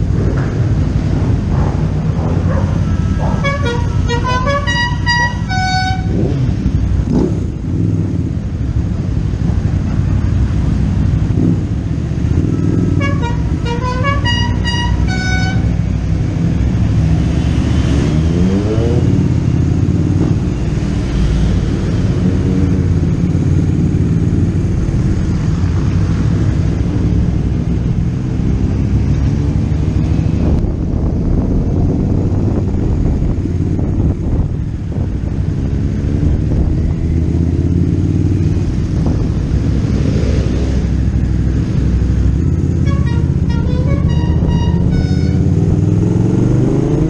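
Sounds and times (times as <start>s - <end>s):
short horn toots: 2.8s - 6.2s, 13.0s - 15.8s, 42.8s - 45.6s
wind rush over microphone: 29.1s - 42.6s.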